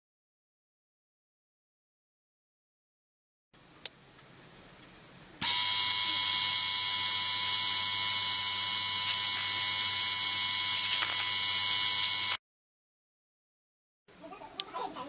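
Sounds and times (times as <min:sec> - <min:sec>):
ultrasonic cleaner buzzing hiss: 0:05.4 - 0:12.3.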